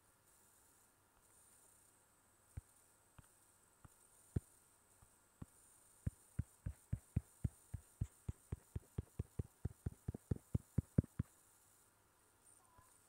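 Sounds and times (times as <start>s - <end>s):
faint hum: 0.0s - 13.0s
taps on a touchscreen: 5.4s - 11.3s.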